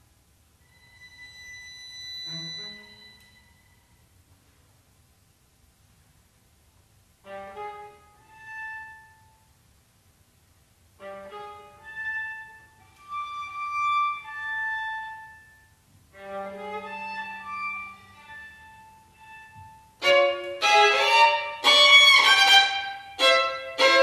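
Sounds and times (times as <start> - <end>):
string trio playing: 11.0 - 15.4, 16.2 - 24.0.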